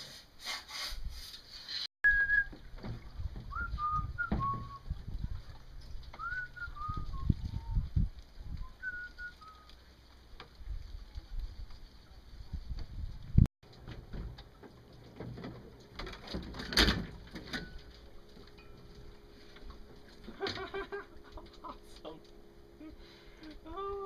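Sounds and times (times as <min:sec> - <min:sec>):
person whistling: 0:02.1 - 0:02.6, 0:03.5 - 0:04.8, 0:06.2 - 0:07.8, 0:08.8 - 0:09.7.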